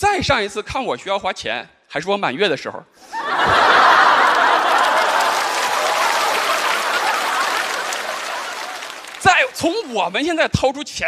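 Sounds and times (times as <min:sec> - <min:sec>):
audience laughing: 0:03.0 - 0:10.2
audience applauding: 0:03.3 - 0:10.6.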